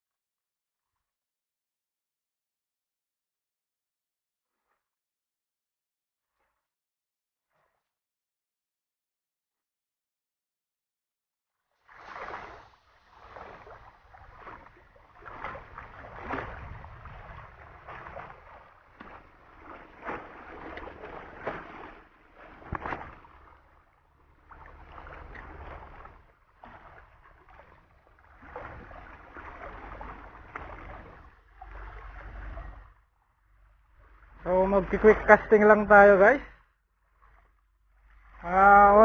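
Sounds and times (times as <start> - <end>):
waves lapping against rocks: 11.9 - 36.4
low rumble: 13.7 - 35.6.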